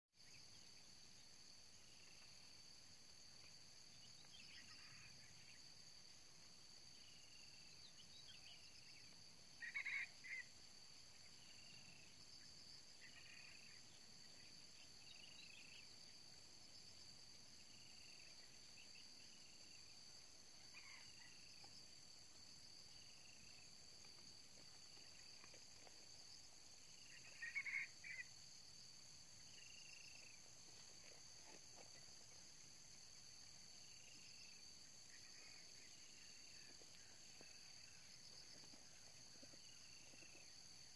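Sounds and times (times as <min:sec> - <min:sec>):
insects droning: 0:00.2 - 0:40.9
small birds chirping: 0:07.7 - 0:10.6.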